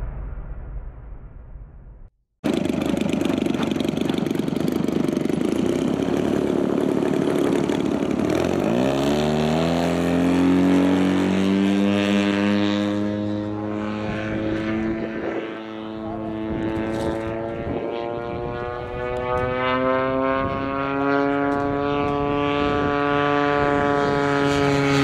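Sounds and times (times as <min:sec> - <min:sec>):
model airplane motor droning: 0:02.5 - 0:25.0.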